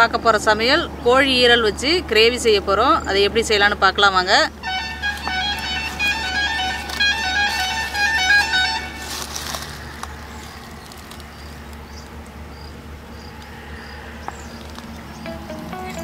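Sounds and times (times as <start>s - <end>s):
melodic music jingle: 15.2s - 16.0s.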